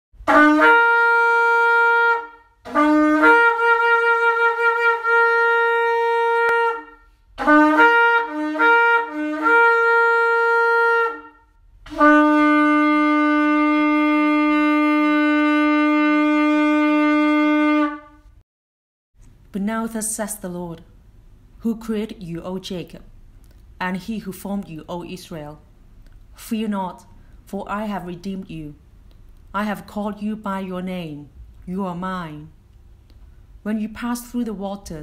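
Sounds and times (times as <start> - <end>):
shofar blasts: 0.2 - 18.4.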